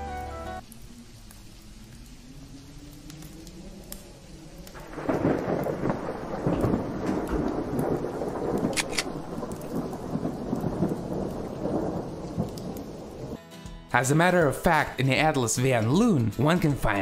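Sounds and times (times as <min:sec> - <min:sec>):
loud rumbling crackling noise: 0:00.6 - 0:13.4
sharp clicks: 0:08.6 - 0:09.1.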